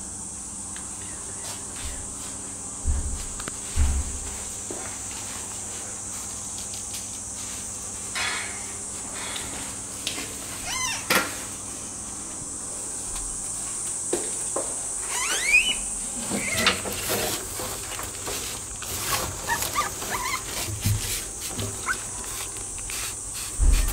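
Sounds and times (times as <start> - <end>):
red panda cub squeaking: 10.6 - 11.0.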